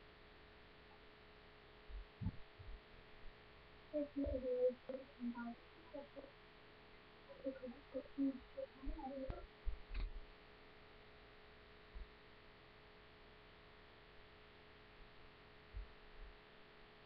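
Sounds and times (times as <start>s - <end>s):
electrical hum: 0.0s - 17.0s
soft low thumps: 1.9s - 3.4s, 7.4s - 10.3s, 15.7s - 16.4s
sharp click: 9.9s - 10.2s.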